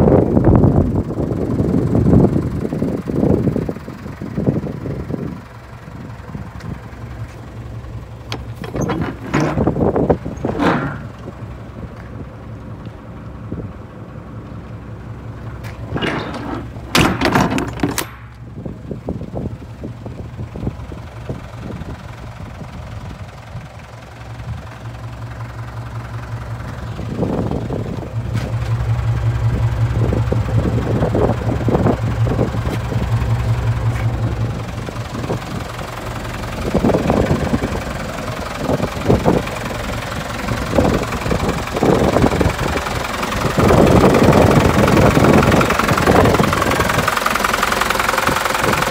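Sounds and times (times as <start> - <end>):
truck engine idling: 0.0 - 48.9
sharp knocks: 10.4 - 11.3, 15.9 - 18.4.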